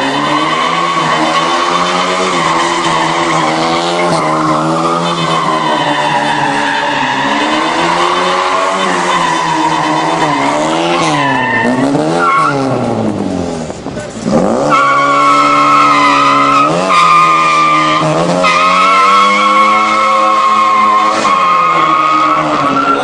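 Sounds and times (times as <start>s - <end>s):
tyres screeching: 0.0s - 12.9s, 14.3s - 23.0s
car engine revving: 0.0s - 23.0s.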